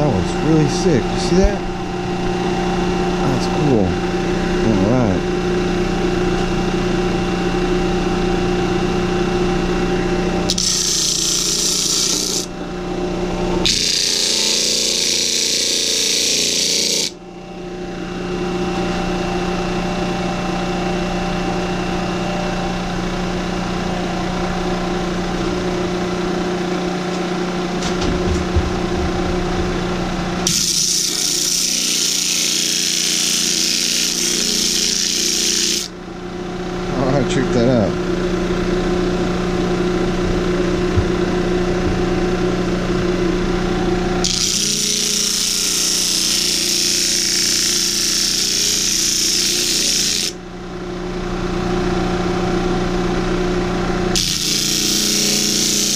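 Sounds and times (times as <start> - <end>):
electric motor humming: 0.0 - 19.9, 22.7 - 50.4, 51.6 - 55.9
wood scratching on sanding disc: 10.5 - 12.5, 13.6 - 17.1, 30.5 - 35.9, 44.3 - 50.4, 54.2 - 55.9.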